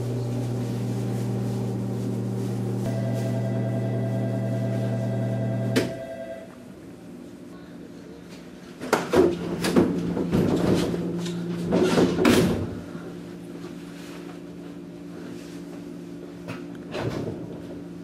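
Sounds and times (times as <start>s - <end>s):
train electrical hum: 0.0s - 16.9s
knocks and clatter: 8.8s - 11.0s.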